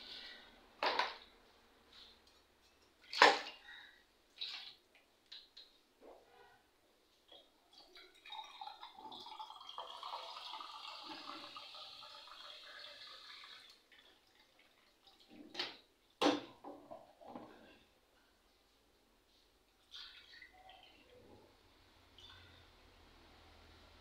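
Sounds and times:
water running: 0:07.6 - 0:15.9.

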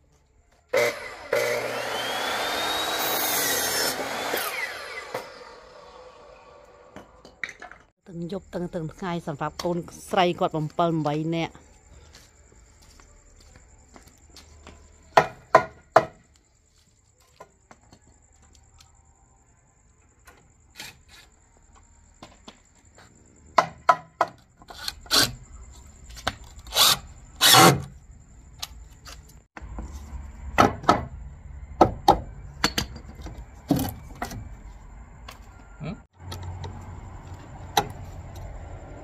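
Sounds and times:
hammer striking wood: 0:15.2 - 0:16.2, 0:30.6 - 0:31.1.

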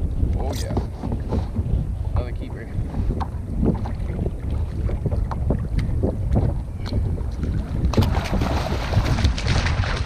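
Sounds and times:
wind buffeting microphone: 0:00.0 - 0:10.0
water slapping kayak hull: 0:00.6 - 0:10.0
water splashing: 0:03.7 - 0:10.0.

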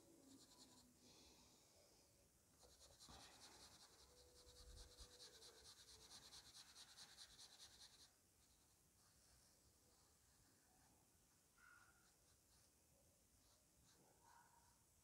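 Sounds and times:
marker scratching on paper: 0:00.3 - 0:00.9, 0:02.6 - 0:09.2.

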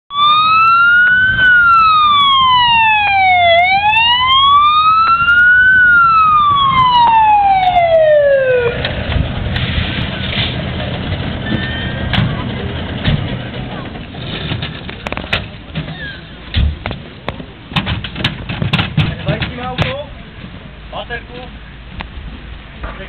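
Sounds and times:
fire engine siren wailing: 0:00.1 - 0:09.1.

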